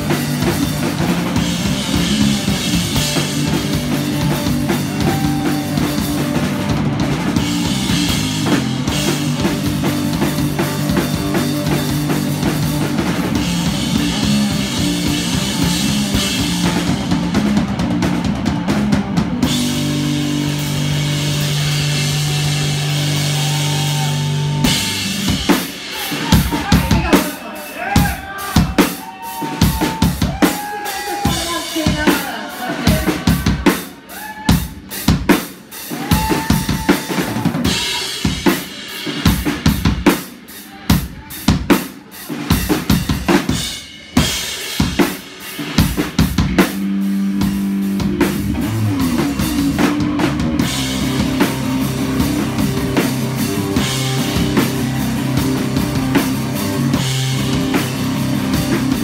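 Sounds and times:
distorted electric bass: 0.0s - 25.5s, 46.2s - 59.0s
heavy drums pounding: 0.0s - 59.0s.

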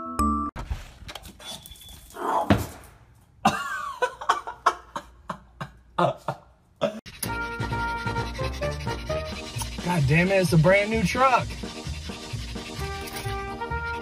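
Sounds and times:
music: 0.0s - 0.5s, 7.1s - 14.0s
dog vocalizing: 7.1s - 14.0s.

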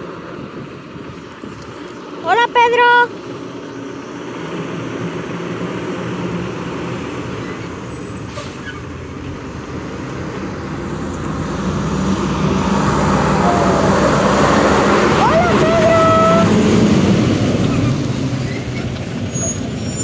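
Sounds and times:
garbage truck diesel engine: 0.0s - 1.2s, 2.0s - 20.0s
short high squeal: 7.4s - 8.9s, 17.8s - 20.0s.

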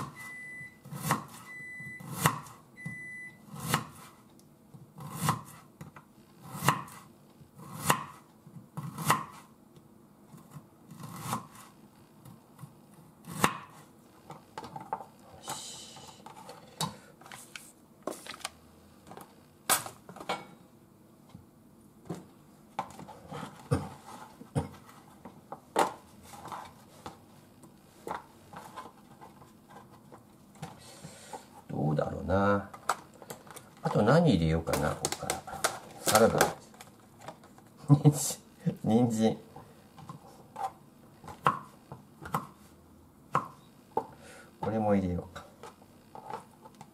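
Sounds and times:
knife chopping on wooden board: 5.0s - 5.6s, 6.5s - 7.0s, 7.7s - 8.2s, 8.8s - 9.4s, 13.3s - 13.8s, 41.3s - 42.6s.

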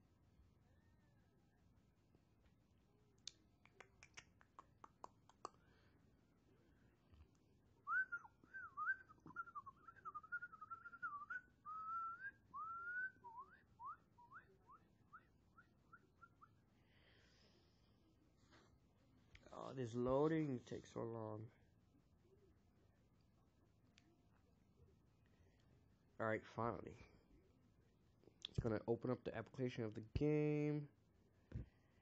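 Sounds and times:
person whistling: 7.9s - 16.5s.

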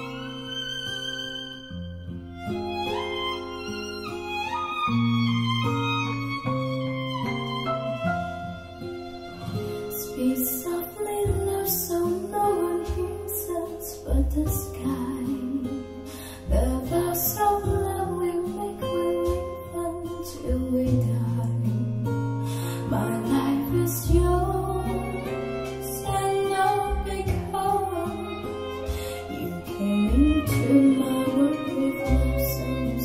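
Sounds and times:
pop song over speakers: 9.9s - 33.0s.

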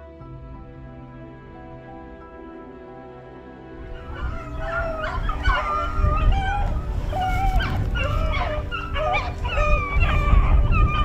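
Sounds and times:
hounds baying: 3.9s - 11.0s.

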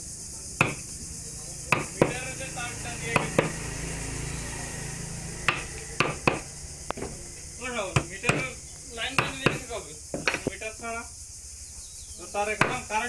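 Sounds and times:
hammer tapping chisel into wood: 0.6s - 0.9s, 1.7s - 2.2s, 3.1s - 3.6s, 5.5s - 7.2s, 7.9s - 10.5s, 12.6s - 12.9s.

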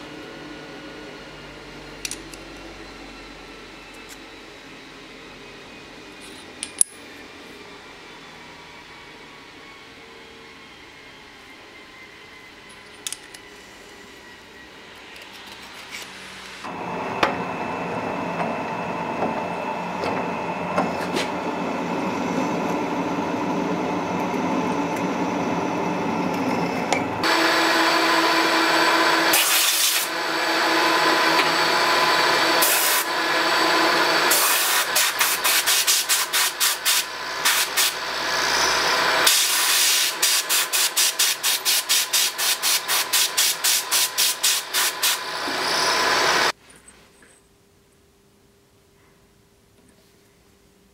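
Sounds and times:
large drill boring through metal: 7.2s - 46.6s
drill press cutting metal: 26.3s - 46.5s.

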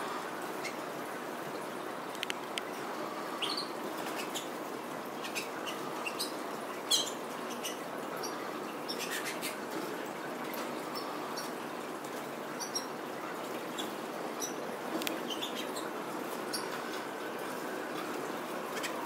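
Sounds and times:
canary chirps: 3.1s - 4.6s, 5.2s - 9.6s, 12.5s - 13.0s, 13.7s - 17.0s.

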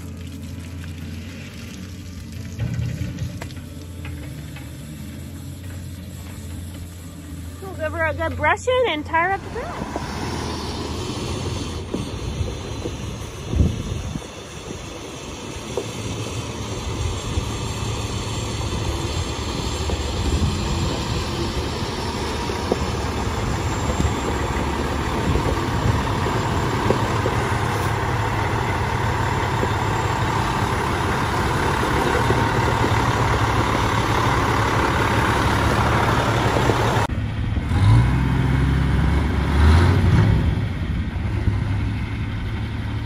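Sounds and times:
diesel truck engine idling: 0.0s - 39.8s, 40.5s - 43.0s.

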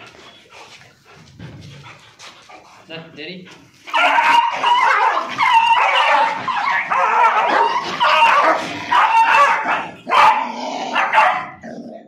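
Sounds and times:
dogs yipping and barking: 3.8s - 11.7s.

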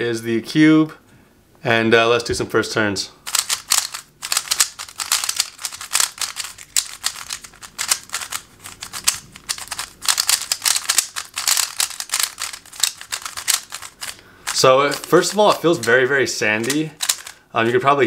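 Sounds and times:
speed cube clicking and scraping: 3.3s - 16.0s, 16.6s - 17.4s.

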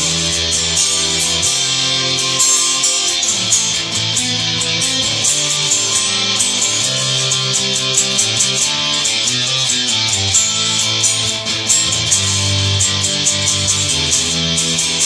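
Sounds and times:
electric guitar strumming chords: 0.0s - 15.0s.

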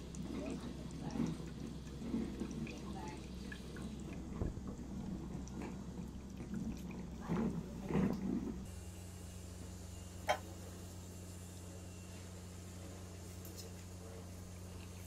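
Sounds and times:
liquid dripping and gurgling in tubing: 0.0s - 8.7s.

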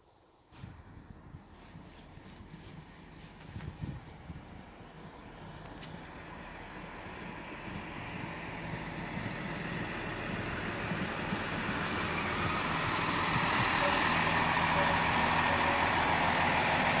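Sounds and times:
diesel train engines running: 0.4s - 17.0s
wheels rumbling on rails: 0.4s - 17.0s.

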